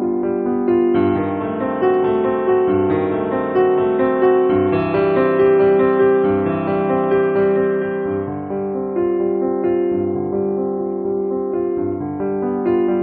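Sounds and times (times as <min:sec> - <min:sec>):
piano piece: 0:00.0 - 0:13.0.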